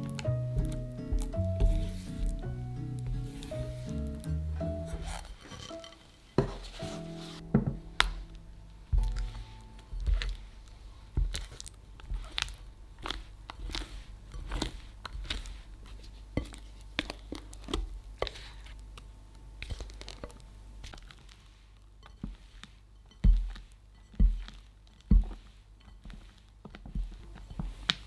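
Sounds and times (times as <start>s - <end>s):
spatula scraping glass bowl: 4.8s - 7.4s
soft wet squelches: 7.4s - 28.0s.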